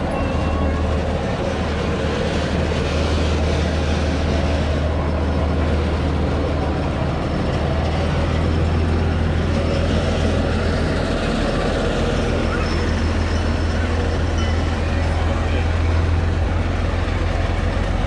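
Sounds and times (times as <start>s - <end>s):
diesel engines idling: 0.0s - 18.0s.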